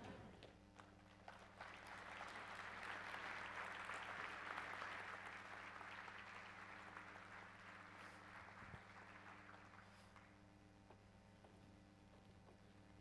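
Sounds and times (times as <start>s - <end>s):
audience applauding: 0.8s - 10.4s.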